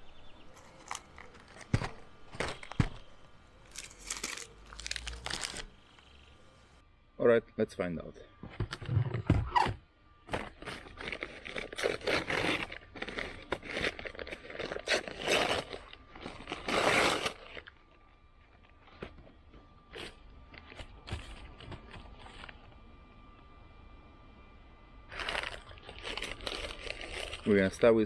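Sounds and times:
paper bag rustling and crinkling: 0.5 - 6.2, 20.7 - 22.7, 25.1 - 27.8.

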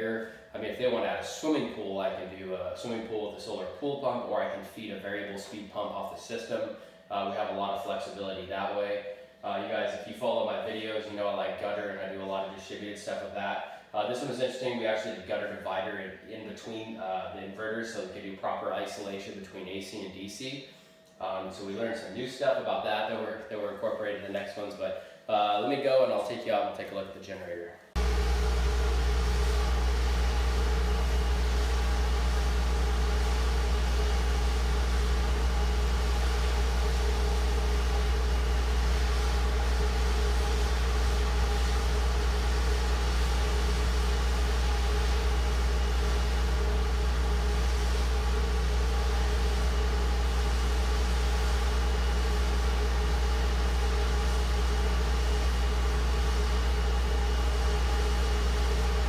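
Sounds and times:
generator engine hum: 28.0 - 59.0.

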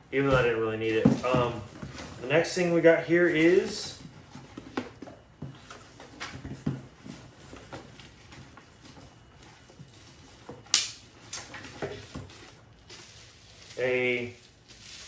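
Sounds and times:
sharp snap: 10.7 - 11.4.

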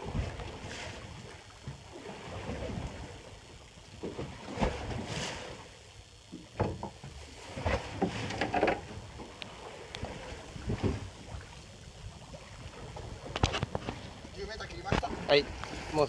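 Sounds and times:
water slapping against boat hull: 6.3 - 11.5, 12.5 - 16.0.

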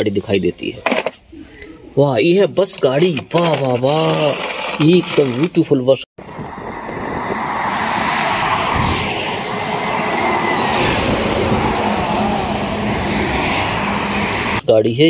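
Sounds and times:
bus driving past: 6.2 - 14.6.

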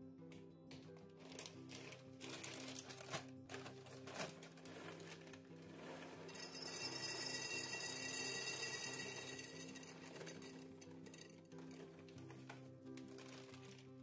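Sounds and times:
background music: 0.0 - 14.0
plastic bag crinkling: 1.2 - 5.6, 11.7 - 13.9
dried beans pouring into glass jar: 1.4 - 13.9.

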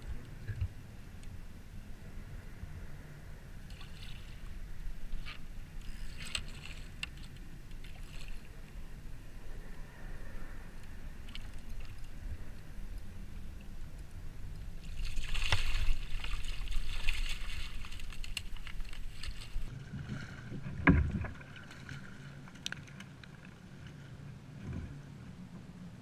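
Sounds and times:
water splashing and churning: 2.9 - 25.0.

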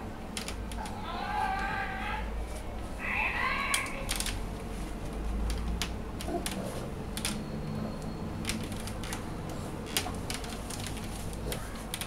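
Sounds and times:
wooden crib rails clicking: 8.4 - 12.0.

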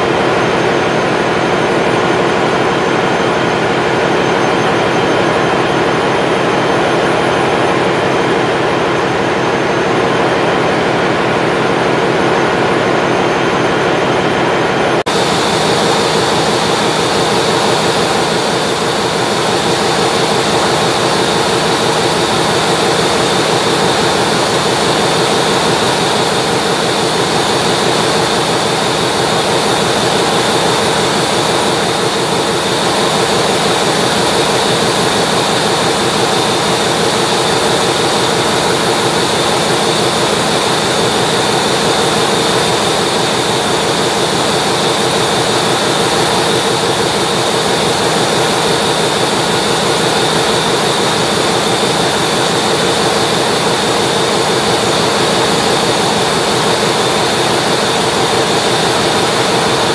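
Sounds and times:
constant machinery hum: 0.0 - 59.9
engine room machinery roaring: 0.0 - 59.9
high machinery whine: 0.0 - 59.9.

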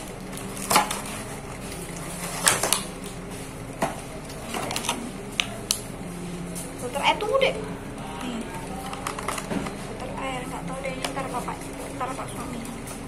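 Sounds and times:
electric fan humming: 0.0 - 13.0
clicks and knocks handling plastic: 8.2 - 10.0.

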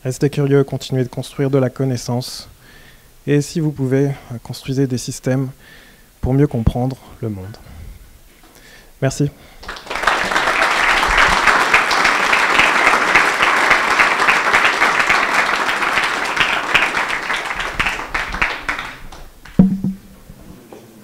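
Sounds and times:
audience applause: 9.6 - 19.6
brief low thump: 19.5 - 20.4.

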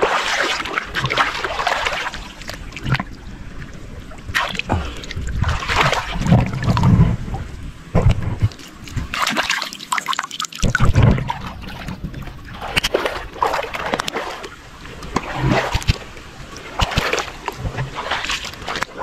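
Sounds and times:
muddy water splashing: 0.0 - 19.0
dull low thumps: 6.2 - 9.1.

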